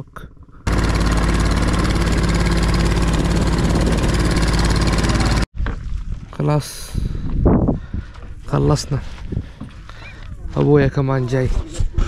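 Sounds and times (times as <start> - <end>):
small boat engine running: 0.2 - 5.5.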